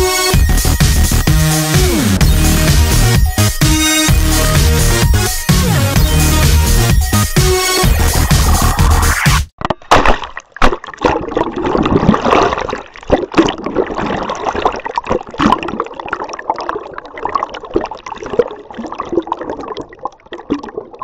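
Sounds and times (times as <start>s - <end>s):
water gurgling and sloshing: 9.6s - 21.0s.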